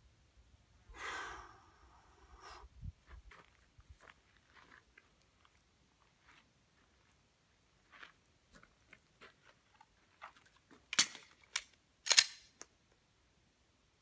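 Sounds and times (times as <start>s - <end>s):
small pistol clicks and rattles: 10.9s - 12.7s
loud metallic pistol clacks: 11.0s - 12.6s.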